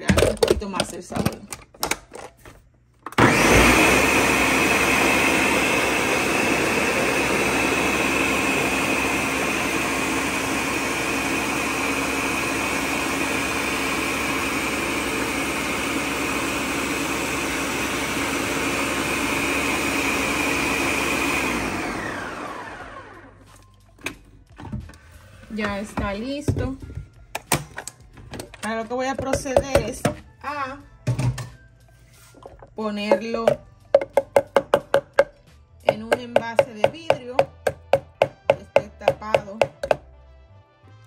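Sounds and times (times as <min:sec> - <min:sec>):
blender running: 0:03.2 - 0:23.5.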